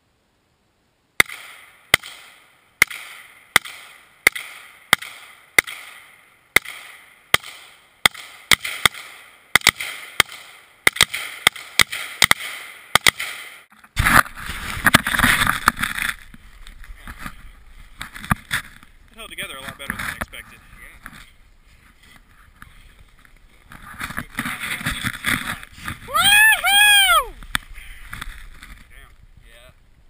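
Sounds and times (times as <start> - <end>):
camera handling rustle: 13.8 - 19.0, 27.4 - 28.9.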